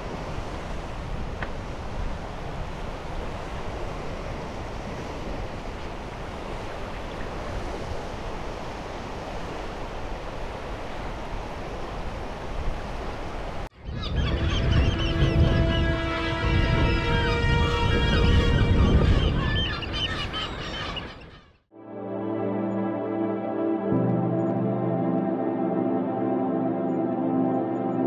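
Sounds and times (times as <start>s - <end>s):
wind rumbling on microphone: 0.0s - 21.4s.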